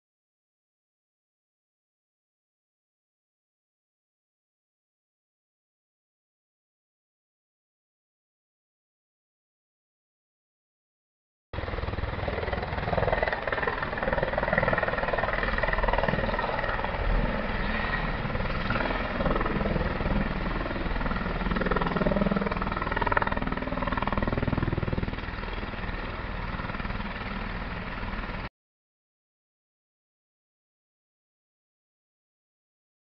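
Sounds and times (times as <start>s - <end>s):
helicopter rotor and engine: 11.6s - 28.5s.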